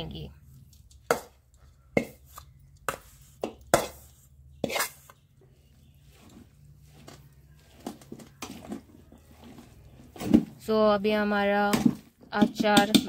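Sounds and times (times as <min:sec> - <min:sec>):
metal spoon scraping metal bowl: 0:02.0 - 0:09.6.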